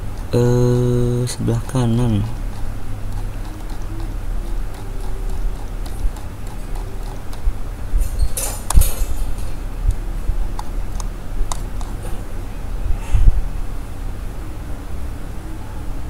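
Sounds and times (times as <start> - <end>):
low electrical hum: 0.0 - 16.0
computer mouse clicks: 1.7 - 7.5, 10.5 - 12.0.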